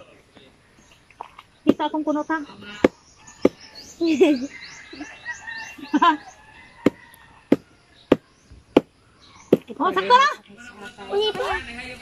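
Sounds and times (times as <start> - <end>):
sharp knocks: 2.8 - 3.7, 6.8 - 8.9.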